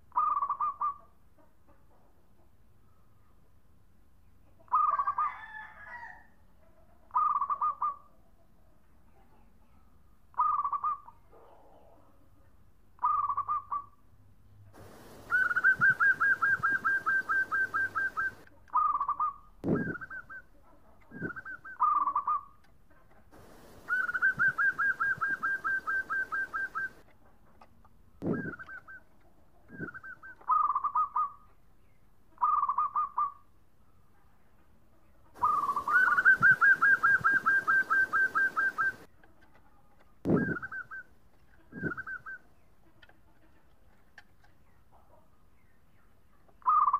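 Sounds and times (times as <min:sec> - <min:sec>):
dove cooing: 0:14.8 - 0:20.4, 0:21.1 - 0:22.5, 0:23.4 - 0:27.0, 0:28.2 - 0:29.0, 0:29.7 - 0:31.4, 0:35.4 - 0:39.1, 0:40.3 - 0:41.0, 0:41.6 - 0:42.4.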